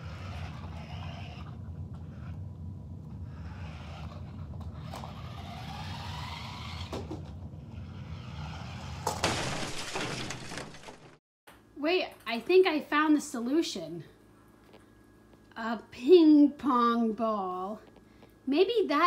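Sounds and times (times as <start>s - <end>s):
toy car motors whining: 0.0s - 2.4s, 3.2s - 9.1s
steady low hum: 0.0s - 9.1s, 11.5s - 19.0s.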